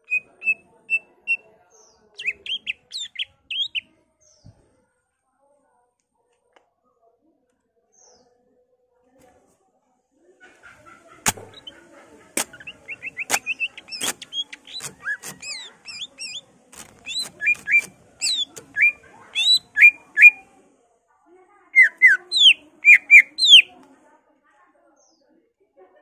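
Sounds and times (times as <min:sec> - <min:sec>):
bird singing chirps and whistles: 0:17.0 - 0:20.4, 0:21.8 - 0:23.7.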